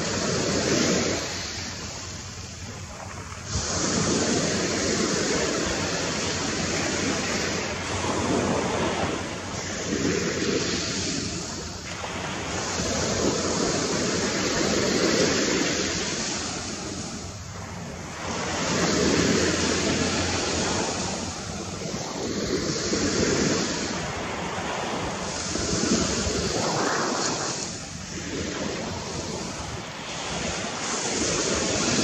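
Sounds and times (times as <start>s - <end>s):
surf washing onto beach: 0.0s - 32.0s
wind on microphone: 0.0s - 32.0s.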